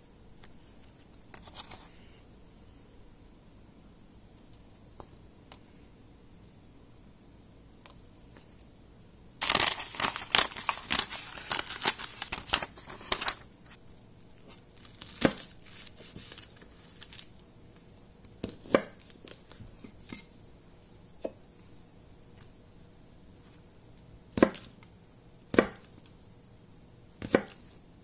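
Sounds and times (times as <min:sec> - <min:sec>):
paper tearing and crumpling: 0:09.4 - 0:13.4, 0:14.7 - 0:17.3
knife chopping on cutting board: 0:24.4 - 0:24.7, 0:25.5 - 0:25.9, 0:27.2 - 0:27.6.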